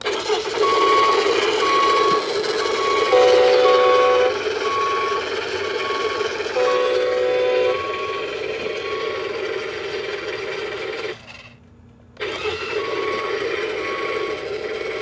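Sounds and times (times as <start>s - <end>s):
toy engine rumble sound: 0.0s - 11.6s, 12.2s - 15.0s
short electronic beeps: 0.6s - 9.4s.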